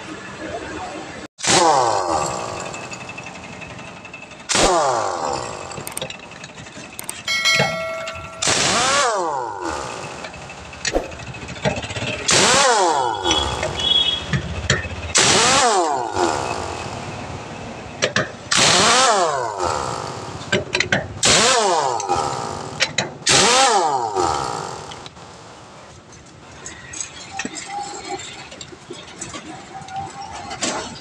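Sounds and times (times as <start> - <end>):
pneumatic impact wrench whining: 1.4 - 7.3, 8.1 - 17.4, 18.5 - 25.2.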